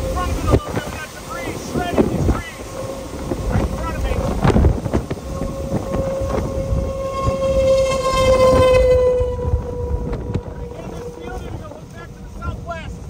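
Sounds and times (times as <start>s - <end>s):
tornado warning siren wailing: 0.0s - 13.0s
wind buffeting microphone: 0.0s - 13.0s.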